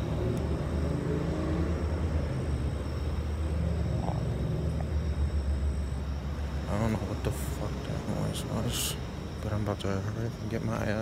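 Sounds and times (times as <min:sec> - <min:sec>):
low steady rumble: 0:00.0 - 0:11.0.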